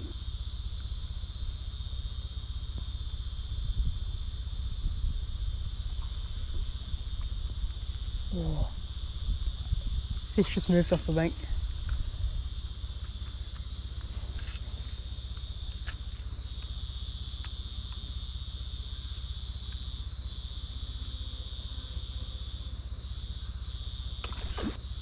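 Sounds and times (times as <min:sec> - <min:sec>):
insects buzzing: 0:00.0 - 0:25.0
low rumble: 0:11.0 - 0:15.2.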